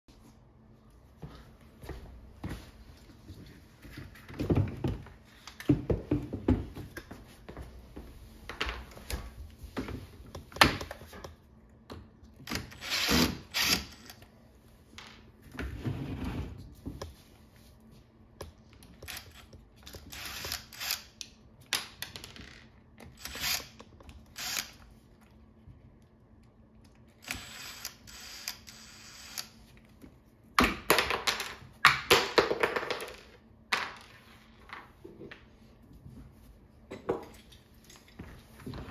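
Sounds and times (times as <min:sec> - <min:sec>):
cordless drill running: 0:12.5 - 0:14.2, 0:20.0 - 0:21.1, 0:23.2 - 0:24.8, 0:27.2 - 0:29.6.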